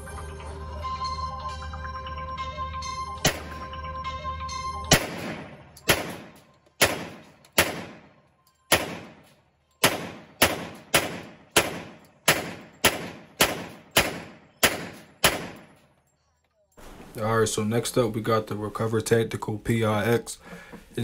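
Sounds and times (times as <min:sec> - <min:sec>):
pistol shots echoing indoors: 0:03.2 - 0:03.6, 0:04.9 - 0:15.9.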